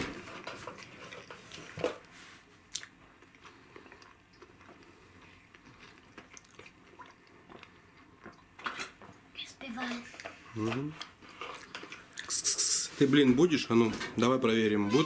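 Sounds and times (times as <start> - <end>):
chewing and swallowing: 2.7 - 9.3, 10.0 - 12.5.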